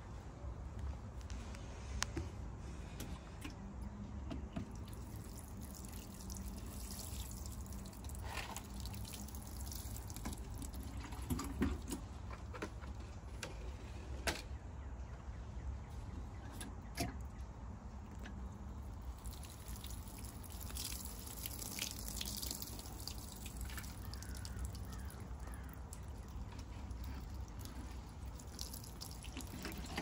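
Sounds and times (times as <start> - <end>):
water running and dripping: 4.6 - 11.8, 18.2 - 30.0.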